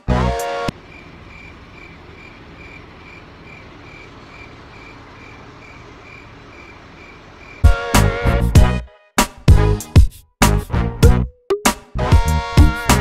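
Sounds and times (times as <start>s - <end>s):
distant traffic rumble: 0.0s - 8.6s
cricket chirping: 0.7s - 7.7s.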